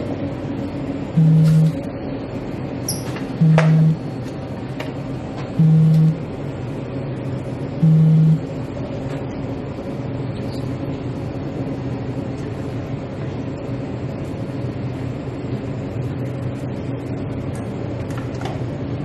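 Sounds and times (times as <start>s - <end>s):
short low buzz: 1.2s - 1.9s, 3.4s - 4.1s, 5.6s - 6.3s, 7.8s - 8.5s.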